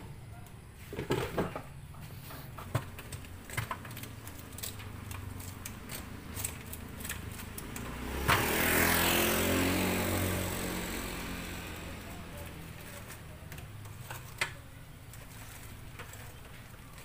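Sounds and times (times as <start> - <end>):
motor vehicle passing: 3.2 - 14.1.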